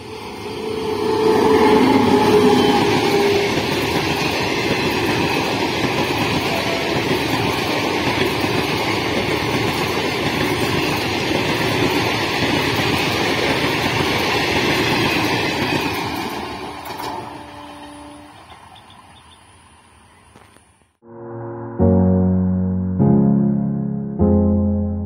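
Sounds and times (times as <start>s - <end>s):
train wheels rumbling and rattling: 0.0s - 19.2s.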